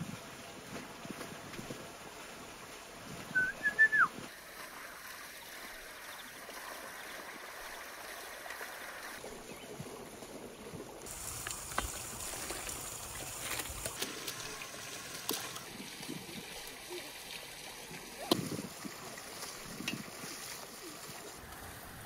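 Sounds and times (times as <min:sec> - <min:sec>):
high whistling call: 0:03.3 - 0:04.1
outdoor hiss: 0:11.0 - 0:18.9.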